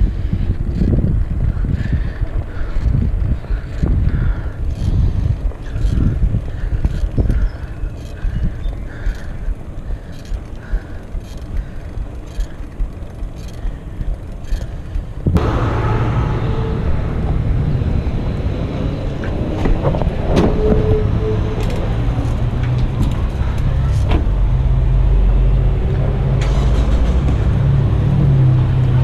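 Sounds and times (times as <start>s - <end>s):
wind on microphone: 0.0s - 10.9s, 14.9s - 26.2s
bike tyres rolling on pavement: 0.0s - 15.4s
steady low drone: 0.0s - 29.0s
faint regular ticks: 2.6s - 15.3s.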